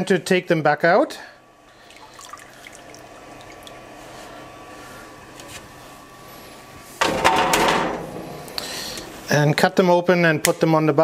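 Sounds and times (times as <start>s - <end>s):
immersion circulator humming: 0.0s - 10.3s
water splashing: 1.7s - 4.0s
water dripping and trickling: 1.8s - 3.9s.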